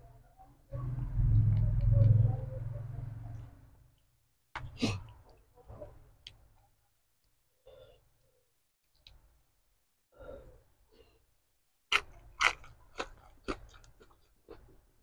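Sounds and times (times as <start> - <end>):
crunching lettuce: 11.9 - 14.3.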